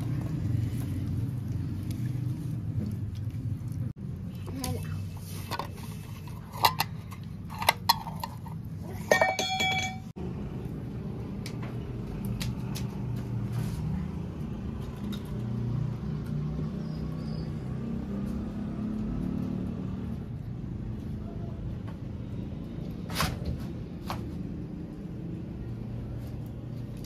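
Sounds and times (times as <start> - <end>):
dishes clinking: 9.0 - 10.1.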